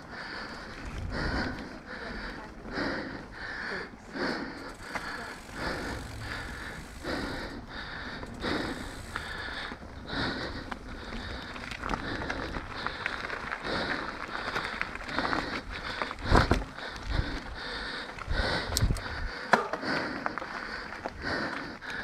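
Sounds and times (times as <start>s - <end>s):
rider breathing: 0.0s - 22.0s
bike rattling over bumps: 4.1s - 22.0s
tyres crunching over gravel: 4.6s - 18.4s.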